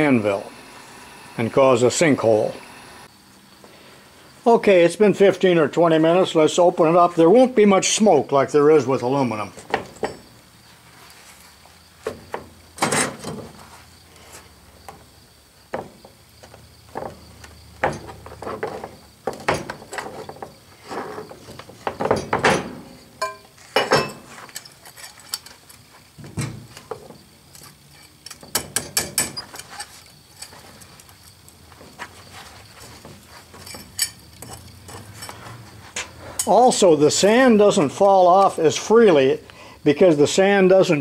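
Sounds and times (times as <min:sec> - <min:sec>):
metal clanks and scrapes: 0:12.8 - 0:14.4, 0:16.9 - 0:36.7.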